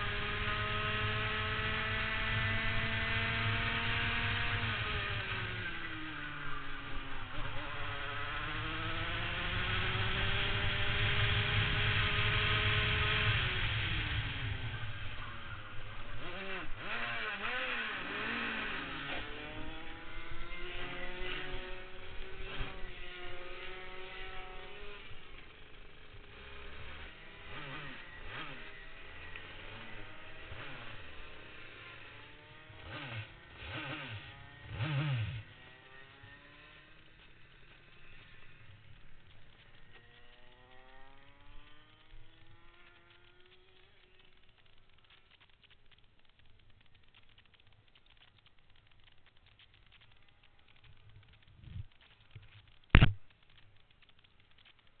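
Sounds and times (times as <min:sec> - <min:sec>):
kart engine at speed: 0:00.0 - 0:55.0.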